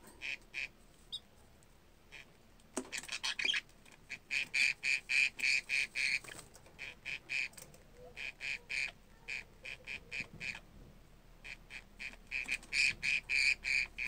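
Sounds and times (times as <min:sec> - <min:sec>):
budgerigar chirping: 0:03.0 - 0:07.5, 0:08.2 - 0:10.6, 0:11.4 - 0:14.0.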